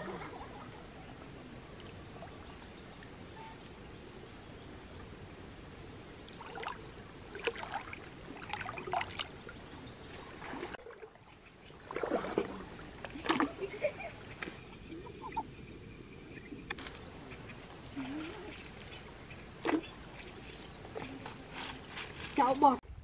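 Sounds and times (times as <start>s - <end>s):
steady background hiss: 0.0s - 8.8s
hands splashing stream water: 6.4s - 9.5s, 10.2s - 15.0s.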